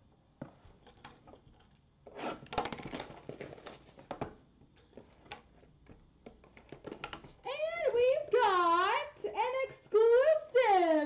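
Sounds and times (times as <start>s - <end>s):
packaging rubbing and crinkling: 2.1s - 4.1s.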